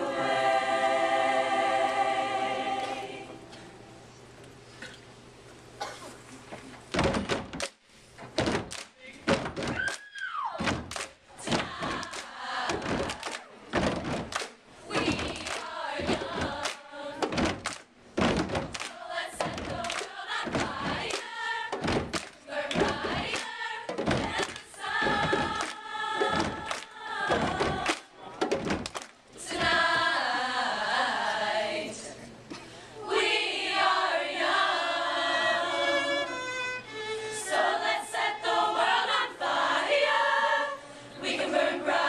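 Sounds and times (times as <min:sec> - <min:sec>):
women's choir singing: 0:00.0 - 0:03.6, 0:11.4 - 0:13.8, 0:14.8 - 0:17.8, 0:18.6 - 0:28.3, 0:29.3 - 0:32.3, 0:33.0 - 0:36.3, 0:37.3 - 0:42.0
percussive thumps: 0:06.9 - 0:09.9, 0:10.6 - 0:29.8.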